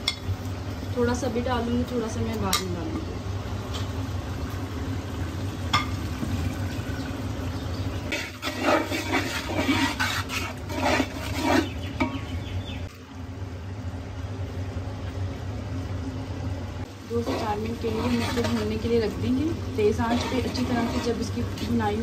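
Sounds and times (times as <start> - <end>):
masala frying in oil: 0.0 - 22.0
metal fork scraping pot: 8.1 - 11.8, 17.2 - 18.8, 19.9 - 21.4.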